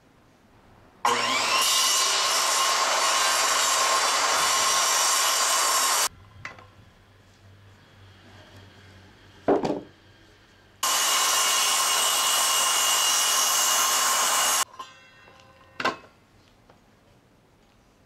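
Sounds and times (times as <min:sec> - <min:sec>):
circular saw cutting wood: 0:01.1 - 0:06.1, 0:10.8 - 0:15.0.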